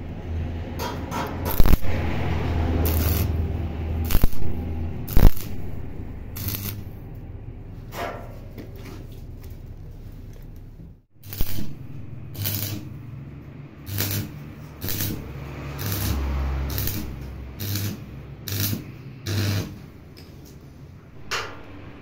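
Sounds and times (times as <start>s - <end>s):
welding machine hum: 0.0s - 7.4s, 11.2s - 20.6s
arc welding crackling: 0.8s - 7.2s, 11.2s - 20.6s.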